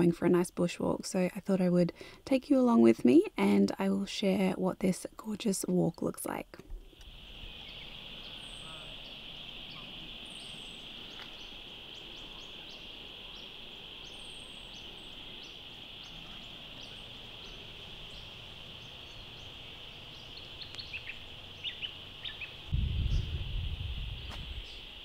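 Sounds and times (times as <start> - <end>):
bird chirps: 7.2 - 23.4.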